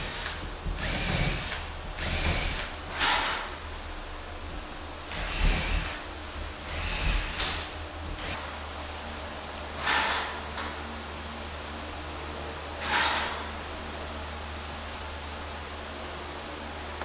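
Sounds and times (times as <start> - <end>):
cordless drill driving screws: 0.0 - 2.7, 5.2 - 6.0, 6.7 - 7.4.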